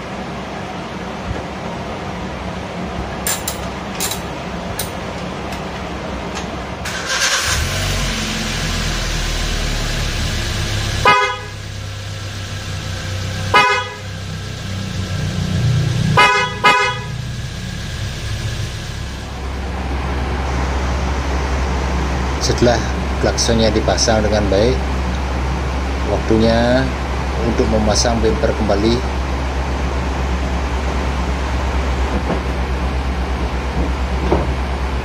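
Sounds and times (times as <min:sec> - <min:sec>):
car horn blasts: 0:11.0 - 0:11.6, 0:13.5 - 0:14.1, 0:16.2 - 0:17.2.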